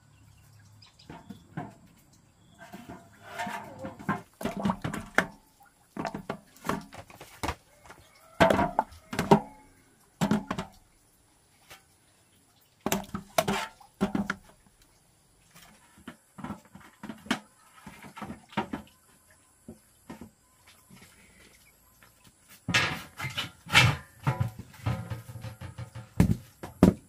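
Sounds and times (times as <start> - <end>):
bamboo tubes knocking: 2.6 - 5.4, 6.0 - 10.8, 12.8 - 14.6, 22.7 - 27.0.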